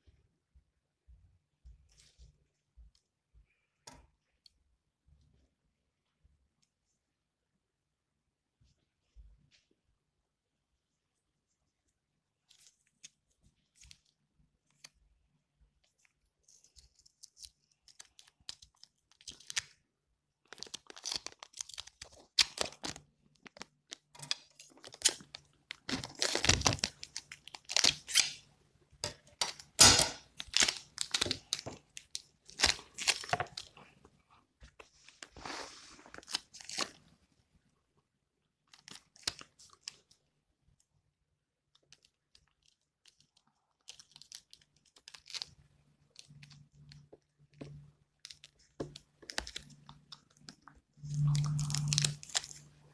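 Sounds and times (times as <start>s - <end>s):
tape crinkling: 15.8s - 19.8s, 20.4s - 34.0s, 34.7s - 37.2s, 38.6s - 40.2s, 41.7s - 52.8s
packing tape ripping: 24.2s - 28.4s, 29.4s - 31.7s, 51.5s - 52.6s.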